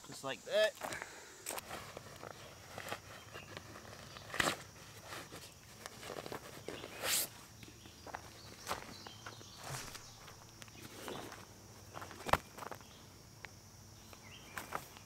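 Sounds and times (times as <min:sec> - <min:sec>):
leaves rustling: 0:00.0 - 0:12.8
footsteps on dry leaves: 0:08.0 - 0:12.8.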